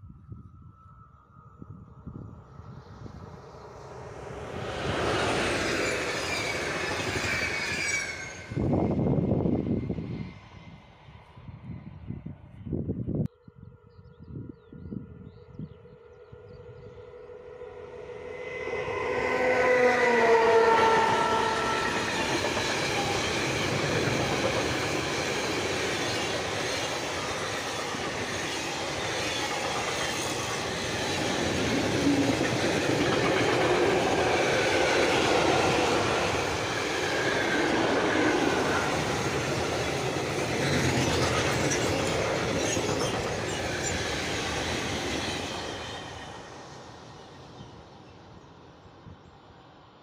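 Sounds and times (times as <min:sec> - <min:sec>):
locomotive horn: 0:17.4 - 0:22.5
train wheels rumbling and clicking: 0:21.5 - 0:46.2.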